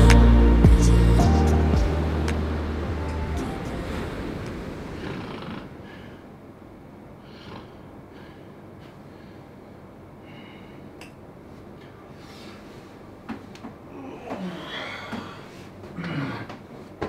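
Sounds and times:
man breathing in sleep: 7.2s - 11.0s.

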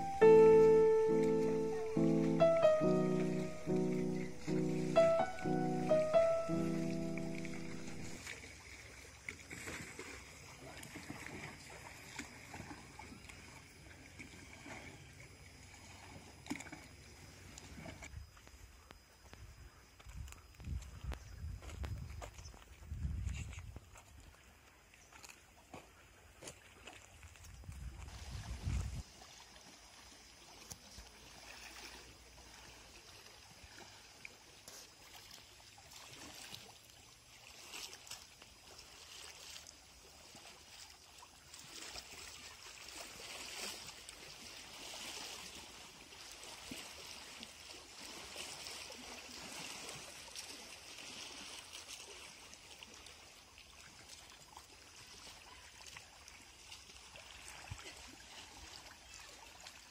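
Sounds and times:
small waves lapping on rocks: 8.2s - 18.1s, 24.0s - 59.9s.

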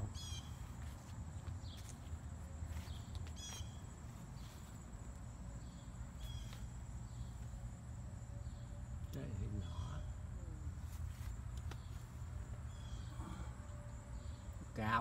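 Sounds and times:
insects high-pitched whine: 0.0s - 15.0s
short chirping calls: 2.9s - 4.6s, 5.7s - 7.4s.

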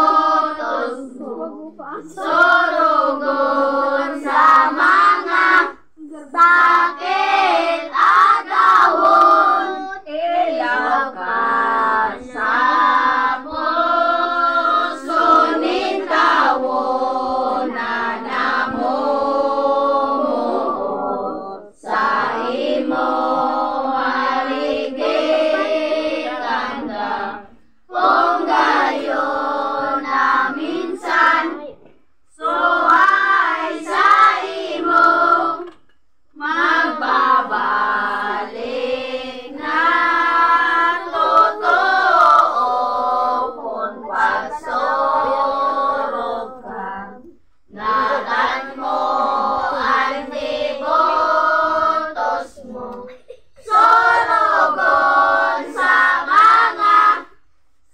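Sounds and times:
children and women singing a hymn: 0.0s - 57.9s.

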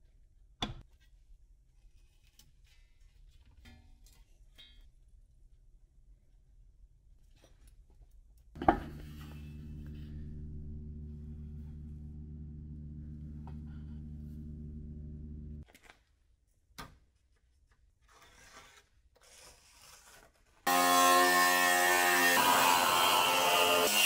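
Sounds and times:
angle grinder cutting steel: 8.6s - 15.4s, 20.7s - 24.0s
steady hum: 8.6s - 15.6s.

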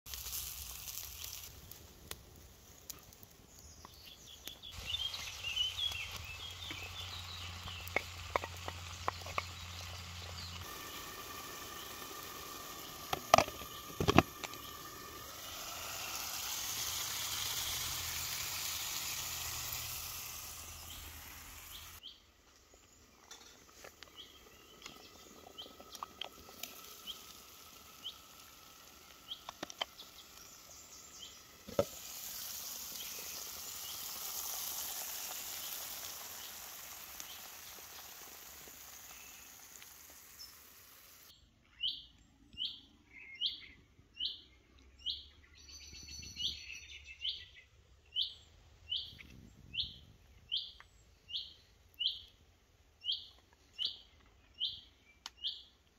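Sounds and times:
food sizzling in frying pan: 0.1s - 22.0s, 23.3s - 41.3s
small birds chirping: 2.6s - 55.9s.

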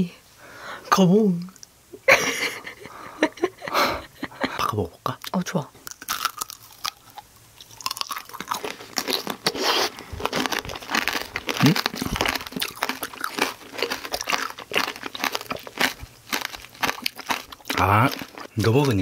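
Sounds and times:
candy shell crunching: 5.8s - 19.0s
person humming: 11.6s - 12.2s.

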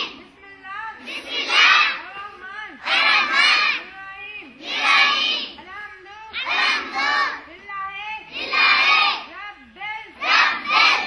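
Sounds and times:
children shouting in unison: 1.1s - 2.0s, 2.8s - 3.8s, 4.6s - 5.6s, 6.4s - 7.4s, 10.2s - 11.0s.

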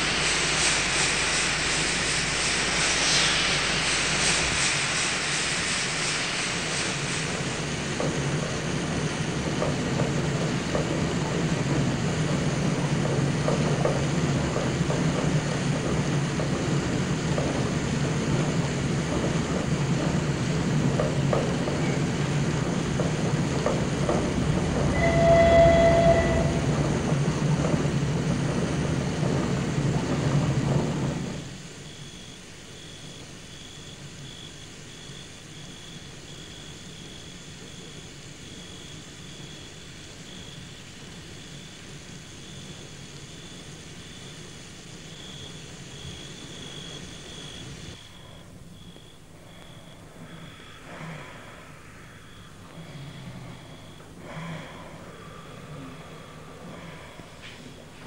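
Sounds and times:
locomotive rumble: 0.0s - 31.7s
train wheels clattering on rails: 0.0s - 31.9s
steam hissing: 0.0s - 48.5s
steam whistle: 24.6s - 27.0s.

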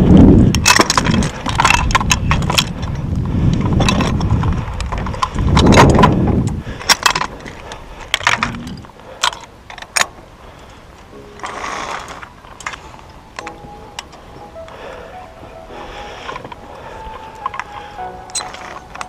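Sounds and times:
wind buffeting microphone: 0.0s - 9.0s
metal hardware clinking and rattling: 0.5s - 6.2s.

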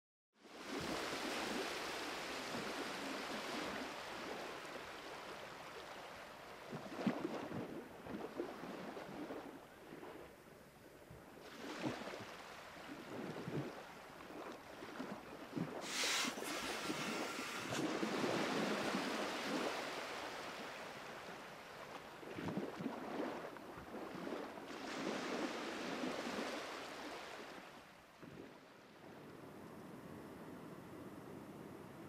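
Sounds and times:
water lapping and splashing: 0.4s - 29.0s
wind noise on microphone: 15.5s - 20.3s
louder water splashes: 15.8s - 21.3s.

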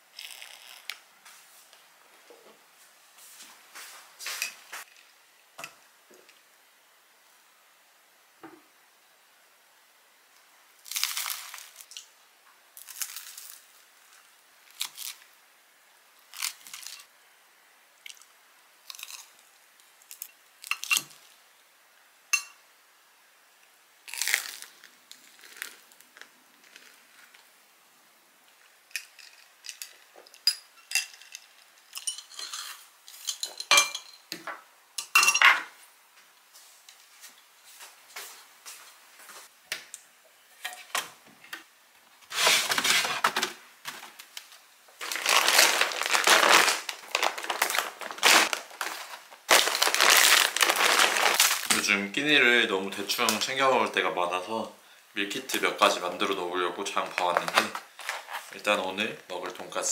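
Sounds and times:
crunchy bites and chewing: 16.3s - 17.0s, 18.1s - 19.4s, 24.1s - 27.4s
plates cutlery and glass clinking: 32.0s - 34.3s, 35.0s - 35.7s.

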